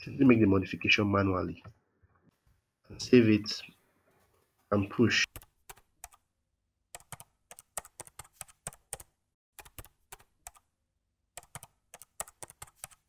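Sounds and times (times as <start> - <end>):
keyboard keys clicking: 7.0 - 10.6, 11.4 - 13.0.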